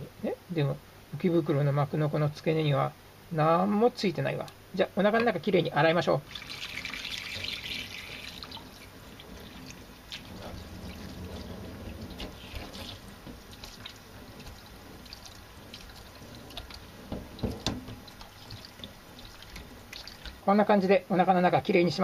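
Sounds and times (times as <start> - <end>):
tap water splashing in sink: 6.3 - 20.4.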